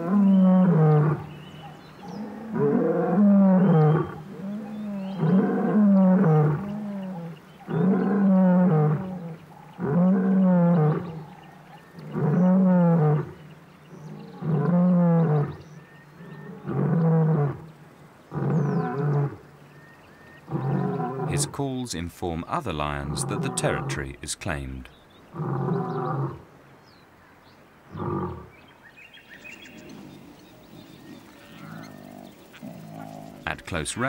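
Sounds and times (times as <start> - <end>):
lion roaring: 20.5 - 21.5, 23.0 - 24.0, 25.3 - 26.4, 27.9 - 28.5, 29.8 - 33.6.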